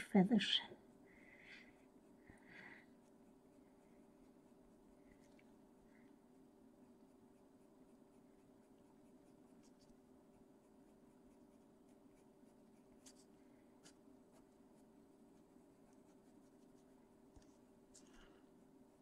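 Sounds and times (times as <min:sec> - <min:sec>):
steady low hum: 0:00.0 - 0:19.0
pencil scratching on paper: 0:06.8 - 0:18.4.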